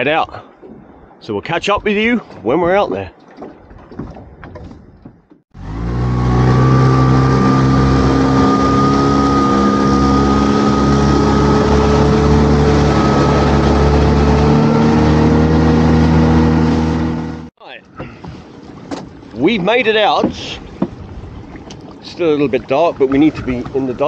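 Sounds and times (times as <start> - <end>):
wind: 0.0 - 24.0
boat motor running: 5.6 - 17.5
water rushing: 5.6 - 17.5, 18.4 - 24.0.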